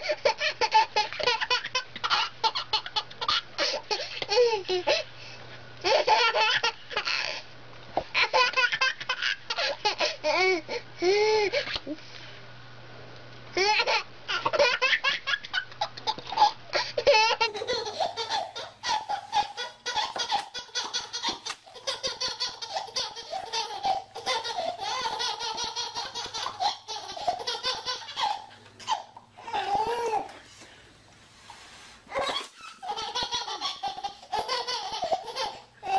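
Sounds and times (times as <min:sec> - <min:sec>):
baby laughing: 0:00.0 - 0:05.0, 0:05.8 - 0:07.4, 0:08.0 - 0:11.8, 0:13.6 - 0:30.4, 0:32.1 - 0:35.9
second baby laughing: 0:00.0 - 0:05.1, 0:05.8 - 0:12.0, 0:13.6 - 0:30.4, 0:32.1 - 0:35.9.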